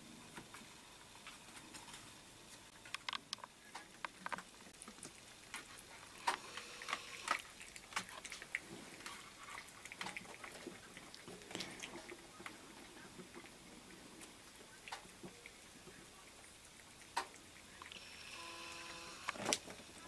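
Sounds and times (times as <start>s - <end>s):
cats eating wet food: 2.7s - 20.0s.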